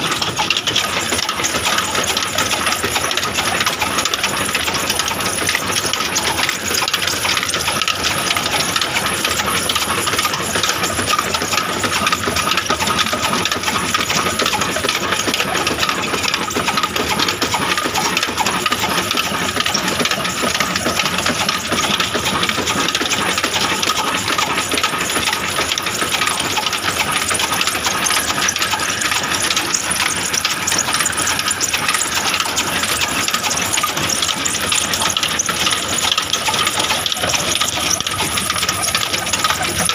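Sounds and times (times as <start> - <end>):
line shaft mechanical clatter: 0.0 - 39.9.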